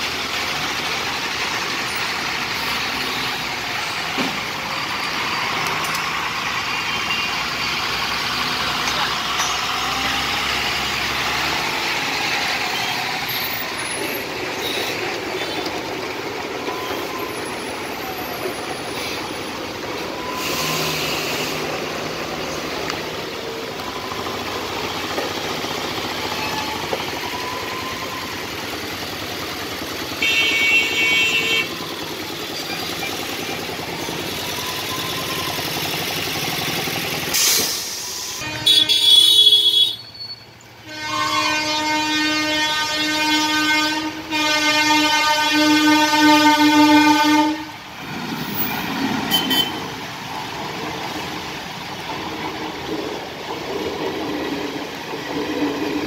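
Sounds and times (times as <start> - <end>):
traffic engine rumble: 0.0 - 56.0
vehicle horn: 30.2 - 31.8, 38.4 - 40.1, 40.8 - 47.8, 49.3 - 50.0.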